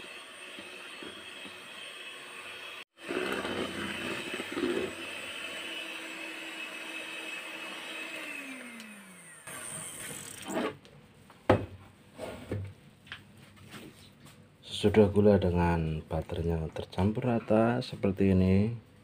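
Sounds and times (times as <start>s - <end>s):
electric hand mixer running: 0.0s - 10.6s.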